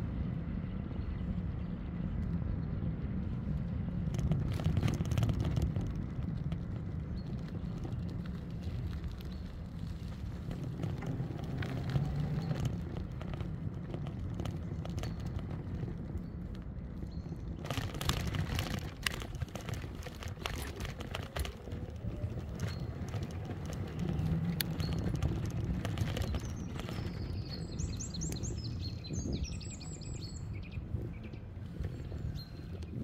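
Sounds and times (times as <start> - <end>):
road rumble: 0.0 - 33.0
wind: 0.0 - 33.0
bird chirping: 26.2 - 32.8.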